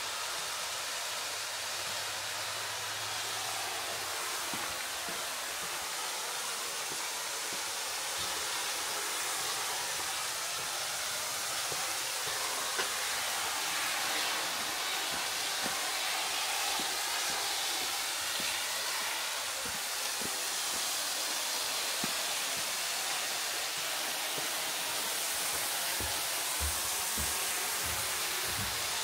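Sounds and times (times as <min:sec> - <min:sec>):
flowing water rushing: 0:00.0 - 0:29.0
footsteps on trail: 0:04.4 - 0:07.6, 0:24.3 - 0:29.0.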